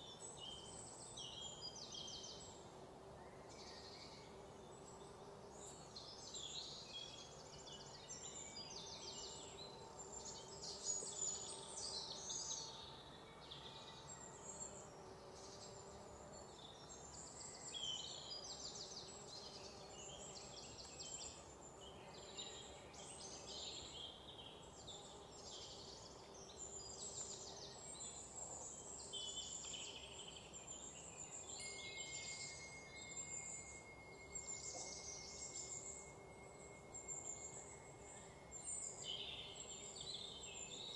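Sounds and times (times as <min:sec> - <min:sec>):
insect trills: 0:26.0 - 0:40.9
bird chirps: 0:26.5 - 0:40.9
thin steady tone: 0:30.6 - 0:40.4.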